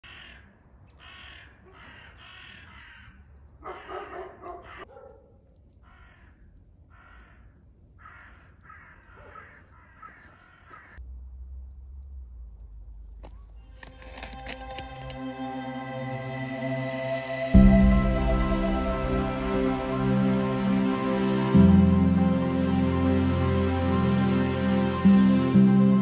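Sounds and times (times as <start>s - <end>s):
crows cawing: 0.0s - 4.9s, 5.8s - 11.0s
low rumble: 11.0s - 26.0s.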